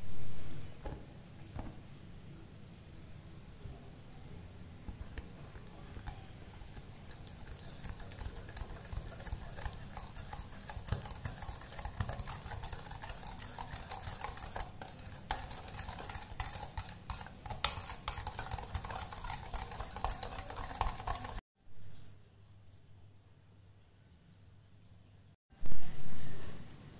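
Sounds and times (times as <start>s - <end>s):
whisk scraping glass bowl: 4.9s - 21.4s
whisk clinking on glass: 5.0s - 21.4s.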